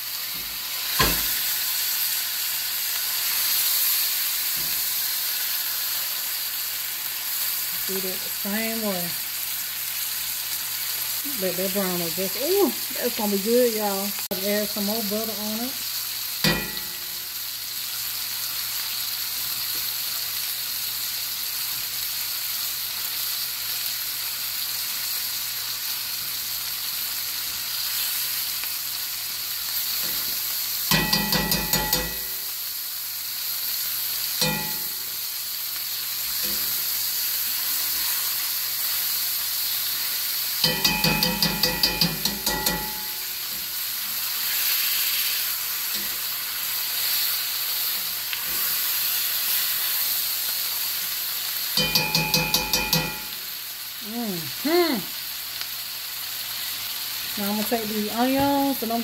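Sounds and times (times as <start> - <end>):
steak sizzling in skillet: 0.0 - 59.0
tongs clicking against pan: 30.0 - 32.4, 40.6 - 43.3.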